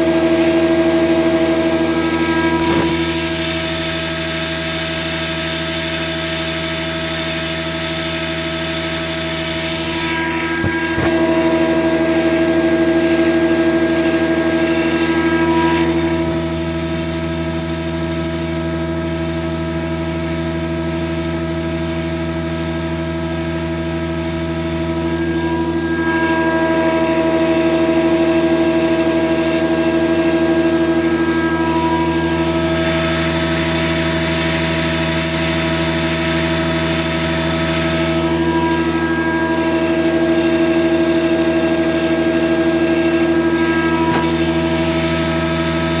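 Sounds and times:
motor and gearbox whining: 0:00.0 - 0:03.8.

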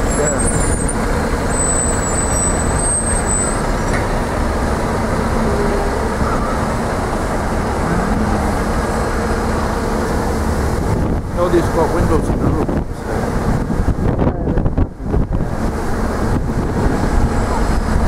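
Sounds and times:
bus diesel engine: 0:00.0 - 0:18.0
street traffic: 0:00.0 - 0:18.0.

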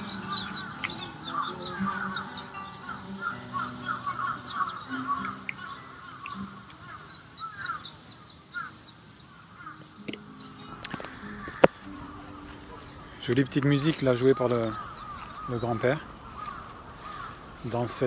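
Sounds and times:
acoustic guitar single notes: 0:09.8 - 0:15.5.

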